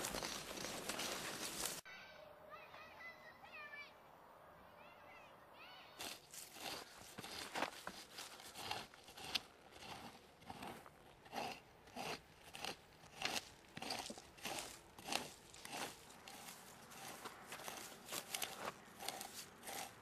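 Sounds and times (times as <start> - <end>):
hoe scraping dry soil: 0.0 - 1.8, 6.0 - 20.0.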